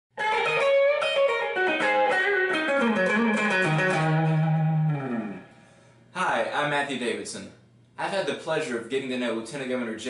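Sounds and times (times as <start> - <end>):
electric guitar lead line: 0.2 - 5.8.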